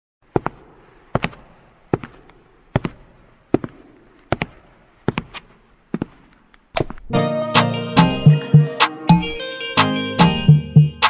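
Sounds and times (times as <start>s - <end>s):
sharp cracking knocks: 0.3s - 5.4s.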